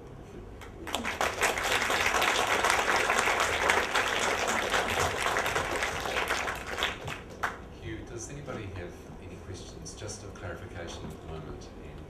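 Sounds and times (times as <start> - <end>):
audience applauding: 0.6 - 7.6.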